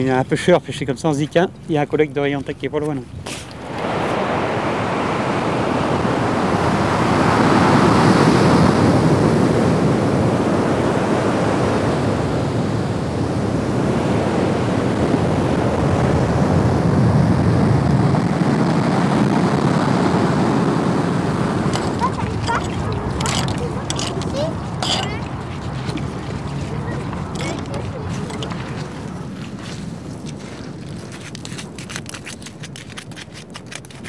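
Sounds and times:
ocean surf breaking on beach: 3.3 - 30.4.

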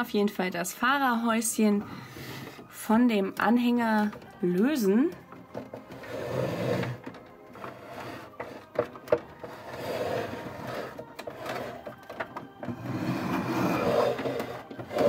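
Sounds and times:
soft background music: 0.0 - 15.0
plastic toy scraping and rubbing: 4.0 - 15.0.

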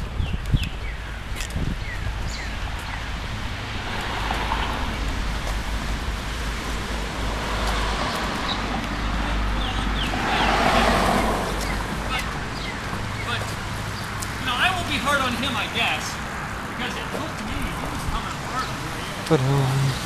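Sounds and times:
car driving past: 6.6 - 12.0.

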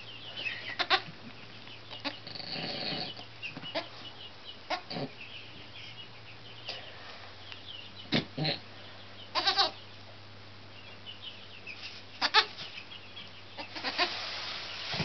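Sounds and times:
goat bleating: 0.7 - 1.1, 9.3 - 9.8, 12.2 - 12.5, 13.6 - 14.2.

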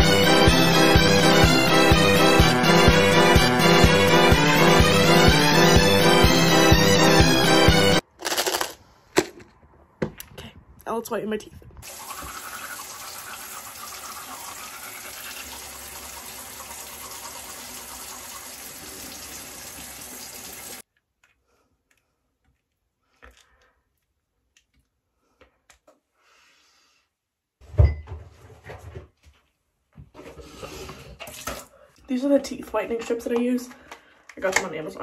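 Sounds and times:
sink tap running: 11.8 - 20.8.

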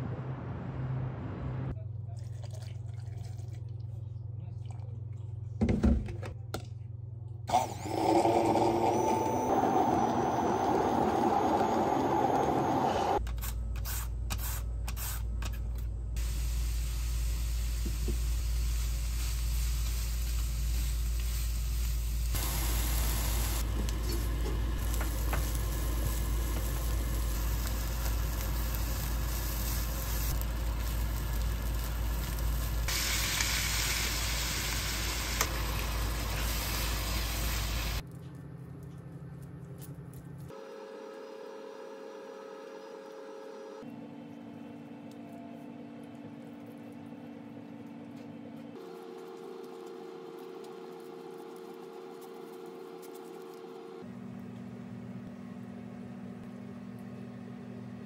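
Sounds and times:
food sizzling in a pan: 16.2 - 38.0.

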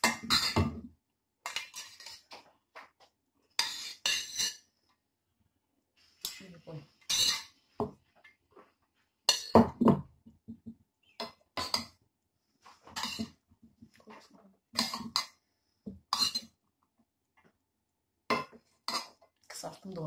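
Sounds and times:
metal spoon scraping a pot: 0.0 - 0.7, 1.4 - 2.4, 3.5 - 4.7, 6.2 - 7.7, 9.3 - 9.6, 12.7 - 13.4, 14.1 - 15.4, 16.1 - 16.6, 18.3 - 19.2.

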